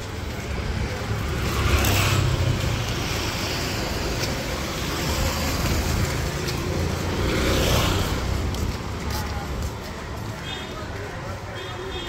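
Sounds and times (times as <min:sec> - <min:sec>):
traffic engines rumbling: 0:00.0 - 0:12.0
tyres on road: 0:00.0 - 0:12.0.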